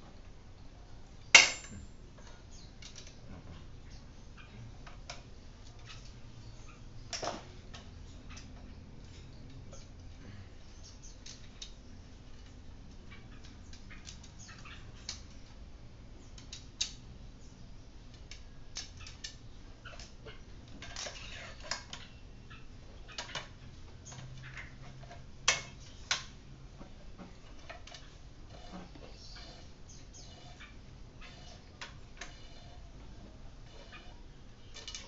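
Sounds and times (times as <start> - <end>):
sharp metal clicks and clinks: 1.4 - 2.0.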